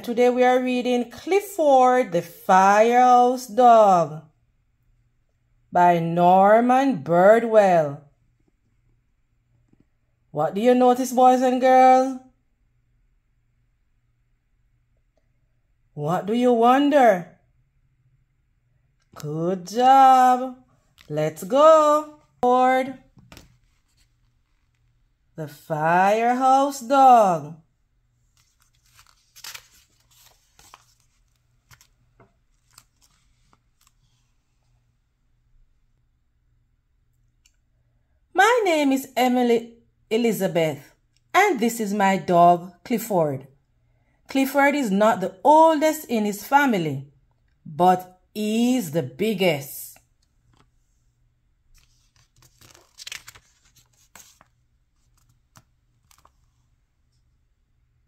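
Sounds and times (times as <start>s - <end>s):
paper page turning: 23.2s - 25.0s, 28.2s - 34.6s, 51.7s - 56.7s.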